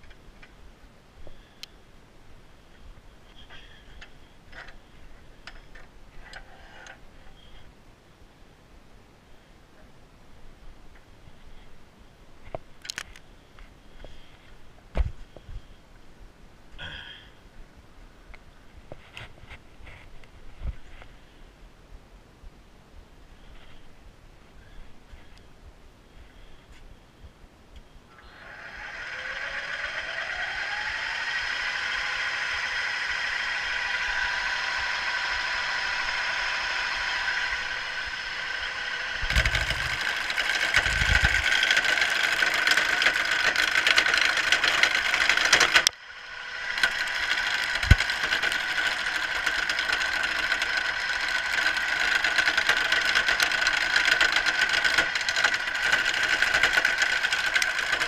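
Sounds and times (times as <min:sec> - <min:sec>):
wood lathe motor whine: 0:28.1 - 0:58.0
turning tool scraping wood: 0:28.4 - 0:58.0.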